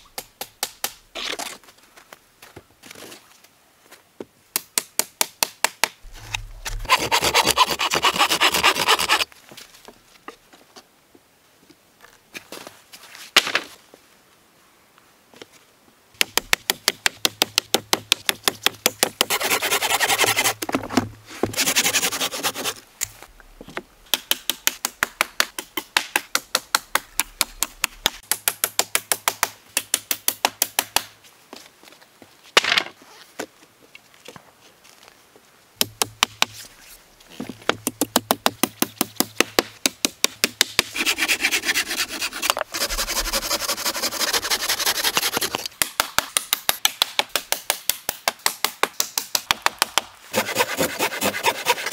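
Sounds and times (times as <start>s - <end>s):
hand saw rasping through wood: 6.8s - 9.3s, 19.1s - 20.6s, 21.5s - 22.8s, 40.8s - 45.7s, 50.3s - 51.9s.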